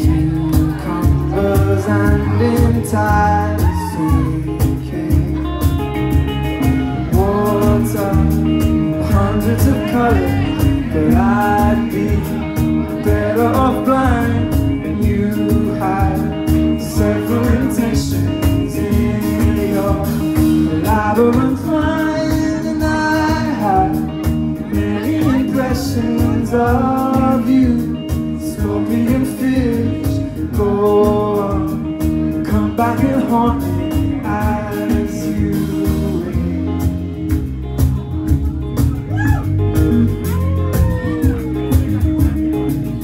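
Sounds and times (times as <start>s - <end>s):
man singing: 0.0s - 37.3s
live band playing: 0.0s - 43.0s.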